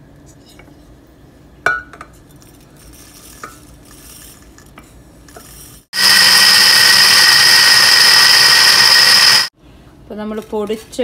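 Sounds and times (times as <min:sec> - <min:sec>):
mixer grinder whining: 0:06.0 - 0:09.5.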